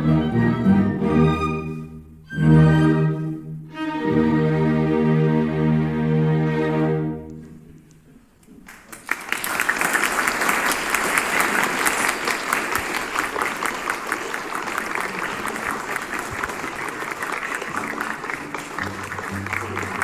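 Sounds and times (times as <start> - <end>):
audience applauding: 8.6 - 20.0.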